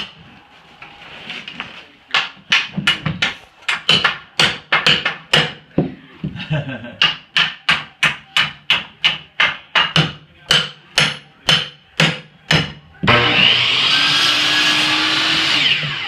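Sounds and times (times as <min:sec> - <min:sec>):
hammer striking wood: 0:02.1 - 0:06.0, 0:07.0 - 0:13.5.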